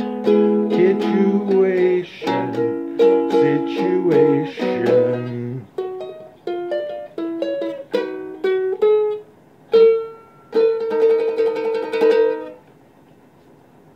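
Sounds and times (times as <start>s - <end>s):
ukulele playing: 0.0s - 12.7s.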